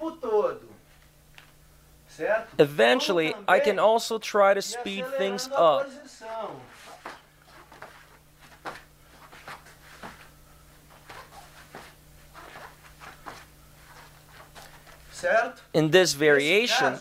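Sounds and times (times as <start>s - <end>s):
faint steady hum: 0.0s - 17.0s
cloth rustling: 6.6s - 15.4s
hands and feet tapping on mat: 6.8s - 15.2s.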